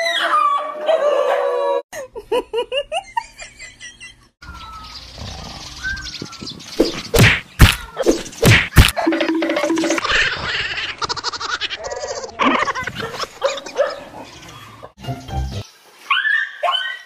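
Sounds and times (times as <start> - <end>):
loud sharp thuds: 6.8 - 9.0.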